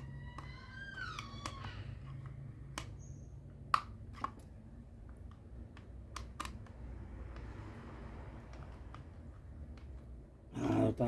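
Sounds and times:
low steady hum: 0:00.0 - 0:11.0
screwdriver clicks and taps: 0:05.1 - 0:07.5.

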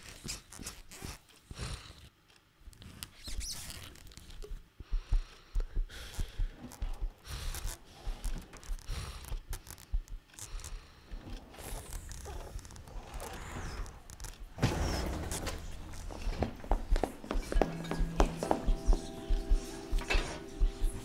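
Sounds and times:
small clicks crackles and rustles: 0:00.0 - 0:04.8, 0:06.1 - 0:14.6
soft low thumps: 0:04.5 - 0:11.2, 0:15.7 - 0:21.0.

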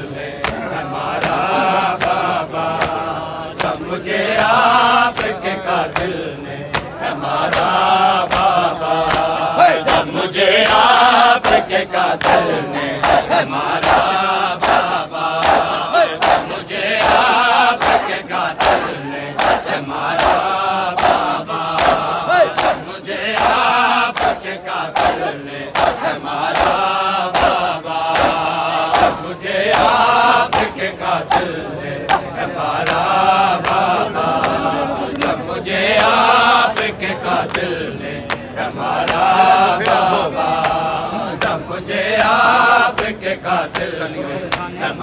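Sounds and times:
men chanting together: 0:00.0 - 0:45.0
hands slapping bare chests: 0:00.4 - 0:35.4.

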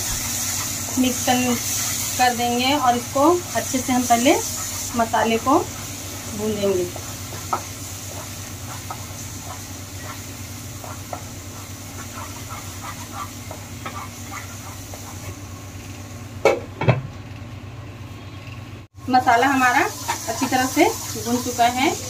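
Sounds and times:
paste sizzling in oil: 0:00.0 - 0:16.2, 0:19.2 - 0:22.0
spatula scraping a pan: 0:00.1 - 0:15.4, 0:19.9 - 0:21.5.

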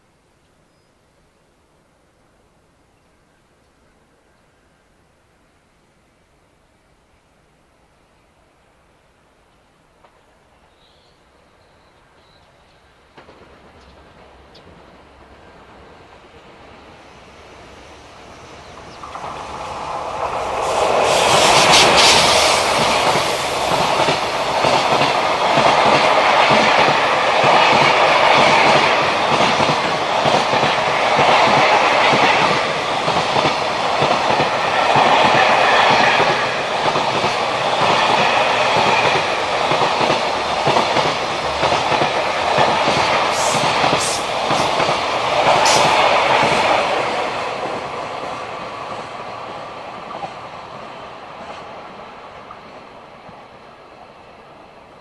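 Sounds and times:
train wheels clattering on rails: 0:13.1 - 0:16.6, 0:18.7 - 0:51.8.

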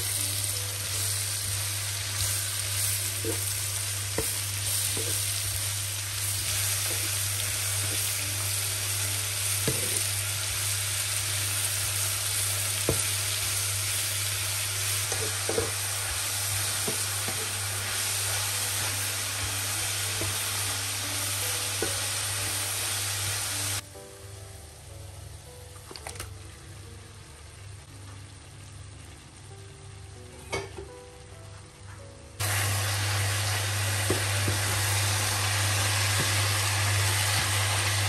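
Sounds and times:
vegetables sizzling in frying pan: 0:00.0 - 0:23.8, 0:32.4 - 0:38.0.

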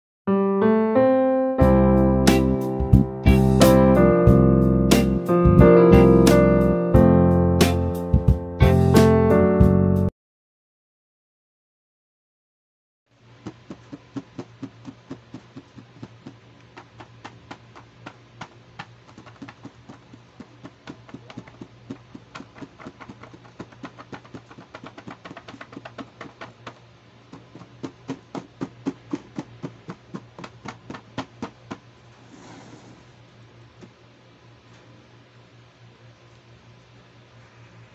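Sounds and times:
fingernails tapping plastic lid: 0:20.6 - 0:26.8.

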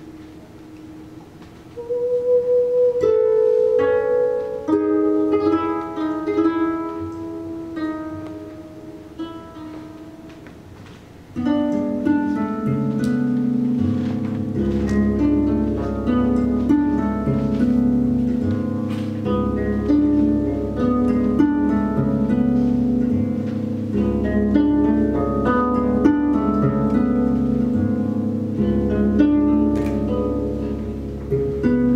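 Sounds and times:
harps playing a duet: 0:00.0 - 0:31.9.

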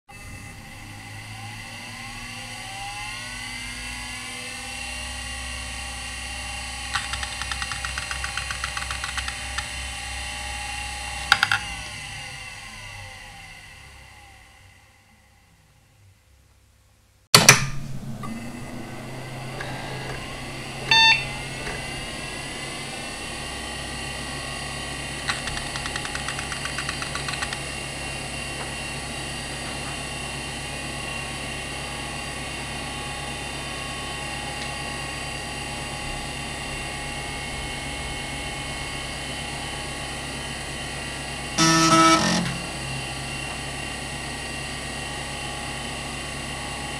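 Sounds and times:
computer fan noise: 0:00.1 - 0:16.8, 0:17.4 - 0:46.9
hard drive whine: 0:00.1 - 0:46.9
rapid hard drive ticking: 0:06.9 - 0:09.9, 0:25.0 - 0:27.9
short computer beep: 0:20.9 - 0:21.4.

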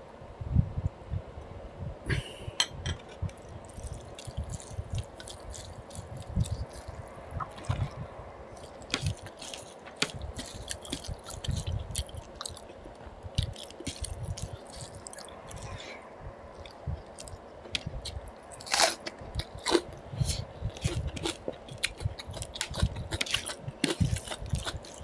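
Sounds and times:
wet squishing of rice: 0:03.3 - 0:08.0, 0:08.6 - 0:15.8, 0:20.7 - 0:25.0.

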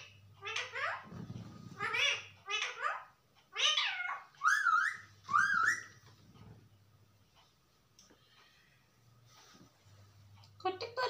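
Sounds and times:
parakeet calling: 0:00.0 - 0:01.1, 0:01.7 - 0:06.0.

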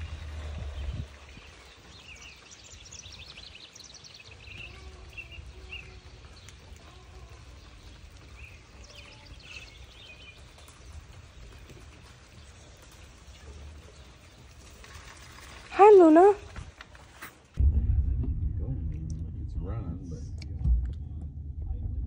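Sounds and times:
steady low rumble: 0:00.0 - 0:01.6, 0:17.6 - 0:22.0
songbirds singing: 0:00.0 - 0:16.6.

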